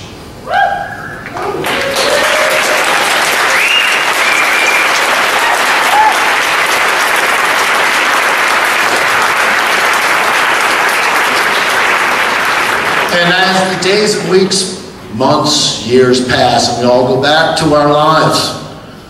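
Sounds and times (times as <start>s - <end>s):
audience applauding: 1.2s - 13.7s
short high whistles: 3.5s - 5.0s.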